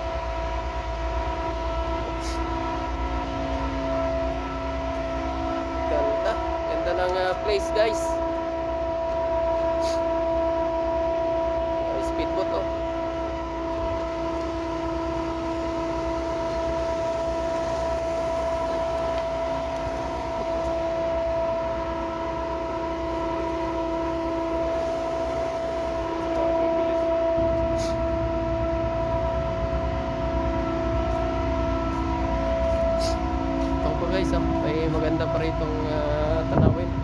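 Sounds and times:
boat engine droning: 0.0 - 37.0.

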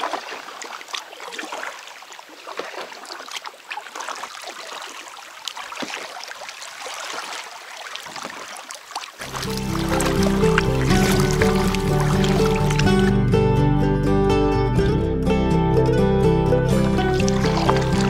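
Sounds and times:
water drips and splashes: 0.0 - 13.1, 16.8 - 18.0
water lapping against a raft: 0.0 - 13.2, 16.8 - 18.0.

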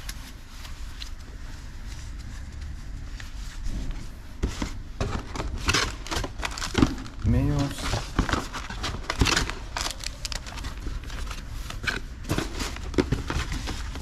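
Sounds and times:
low steady hum: 0.0 - 14.0
packaging clicks and rustling: 4.6 - 14.0.

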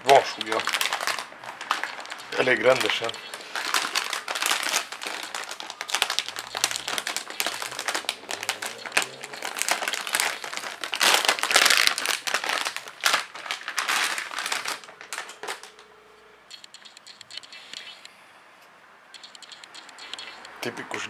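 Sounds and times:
plastic bag crinkling: 0.0 - 15.8.

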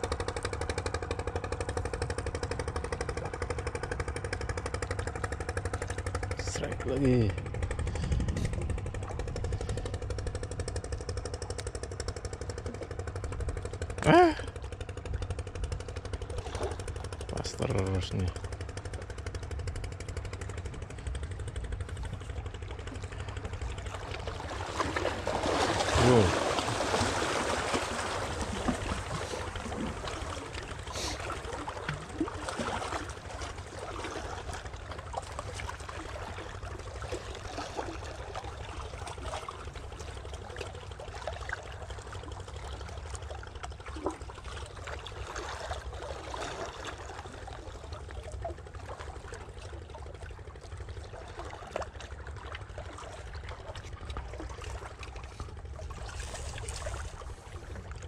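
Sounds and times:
water lapping against hull: 0.0 - 58.0
steady low rumble: 1.6 - 37.2.

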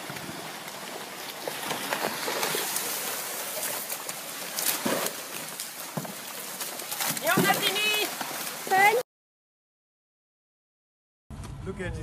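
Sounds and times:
crocodiles splashing in water: 0.0 - 9.0
knocks of jostling crocodiles: 1.3 - 8.9.

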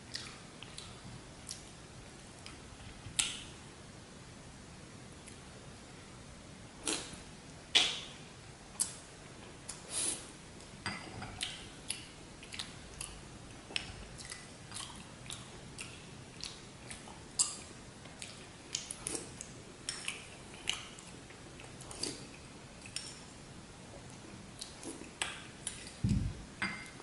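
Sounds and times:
chewing and wet mouth sounds: 0.0 - 1.8, 11.3 - 23.3, 23.9 - 26.2.

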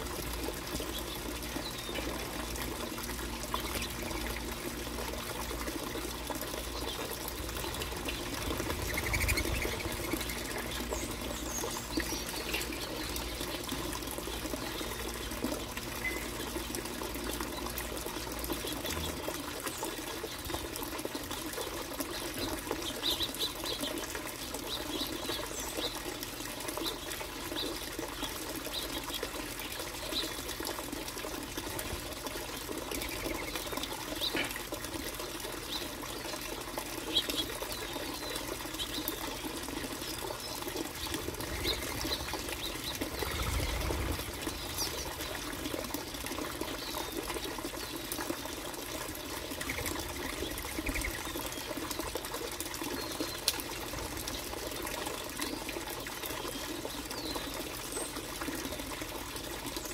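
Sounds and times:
low rumble: 41.2 - 45.9.

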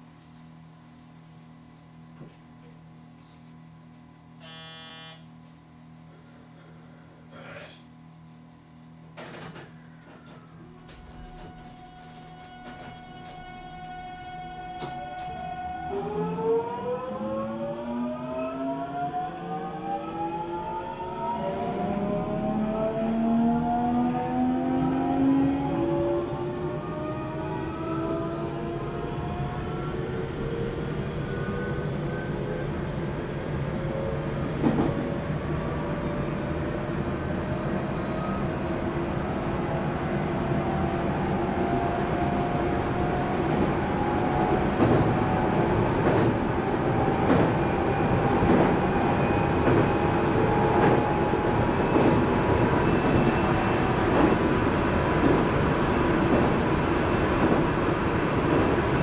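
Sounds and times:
train rolling rumble: 9.1 - 16.3, 20.2 - 59.0.

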